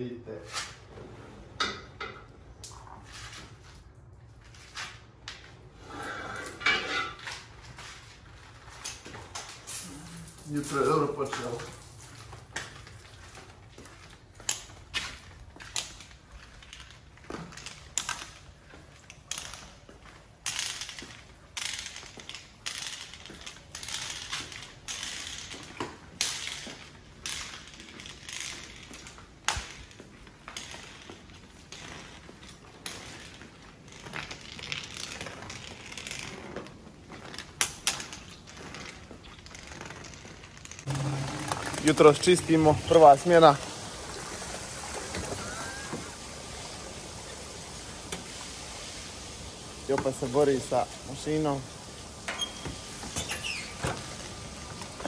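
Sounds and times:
footsteps on tiled floor: 7.2 - 40.6.

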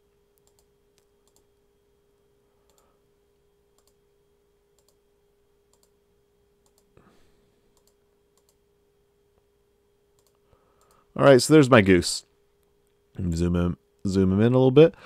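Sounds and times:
low steady hum: 0.0 - 15.0
computer mouse clicks: 0.4 - 1.5, 2.6 - 2.9, 3.7 - 4.0, 4.8 - 5.0, 5.7 - 6.0, 6.6 - 7.0, 7.7 - 8.6, 10.2 - 11.0.

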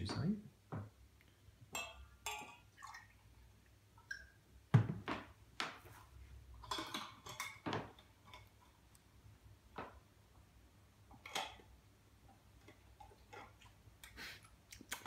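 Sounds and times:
glass and tableware clinking: 1.7 - 2.7, 6.6 - 8.6.

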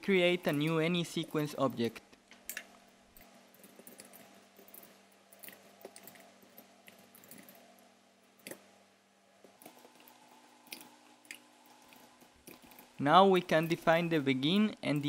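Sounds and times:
low steady hum: 0.0 - 15.0
keyboard typing clicks: 2.3 - 7.6.

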